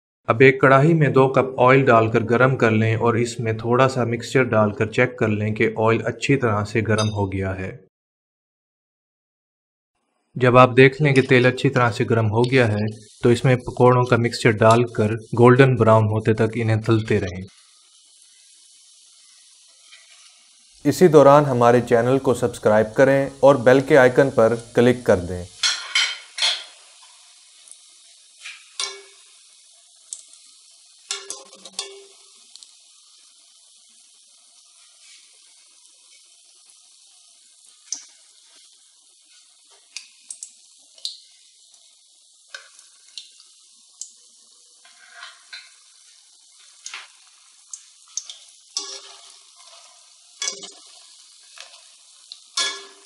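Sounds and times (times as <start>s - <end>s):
metal spoon clinking on pan: 7.0s - 7.2s, 25.6s - 26.8s, 28.8s - 29.2s, 31.1s - 32.2s, 48.8s - 50.8s, 52.5s - 53.0s
deep-frying sizzle in oil: 10.7s - 53.0s.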